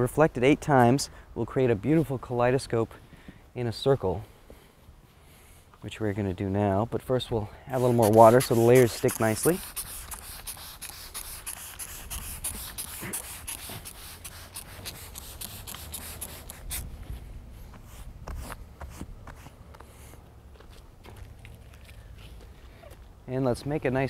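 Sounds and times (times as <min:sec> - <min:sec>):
spray bottle squirting: 0:07.8 - 0:16.8.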